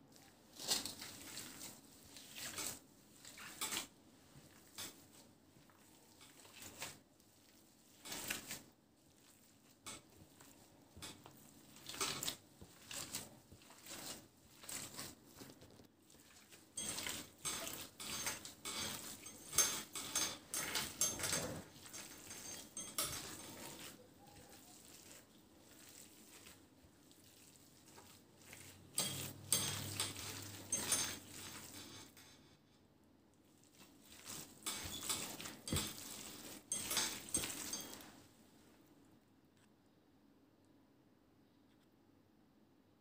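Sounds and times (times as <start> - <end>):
hand squishing raw minced meat: 0.0 - 19.3, 21.7 - 31.9, 33.3 - 38.2.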